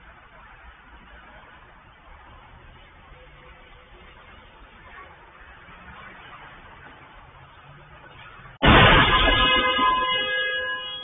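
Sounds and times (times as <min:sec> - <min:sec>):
car collision crunch: 0:08.6 - 0:10.6.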